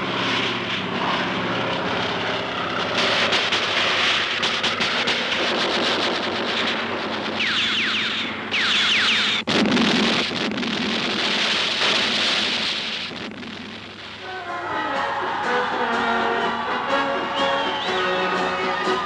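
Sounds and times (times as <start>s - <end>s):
heavy explosion rumble: 0.0s - 14.2s
low-flying plane rushing: 0.0s - 19.0s
falling whistles: 7.4s - 9.4s, 14.5s - 19.0s.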